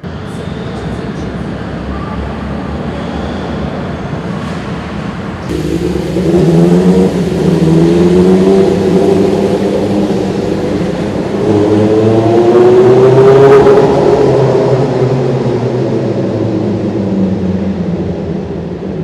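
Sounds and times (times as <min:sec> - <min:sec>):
vehicle engines in a tunnel: 0:00.0 - 0:19.0
engine speeding up: 0:05.4 - 0:19.0.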